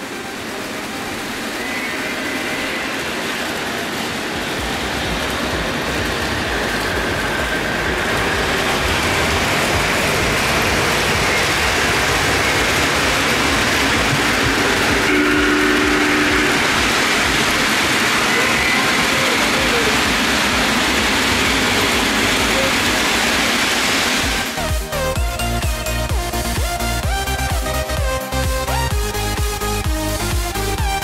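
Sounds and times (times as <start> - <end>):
model train wheels rattling: 0.0 - 24.7
two-note horn tone: 14.5 - 19.0.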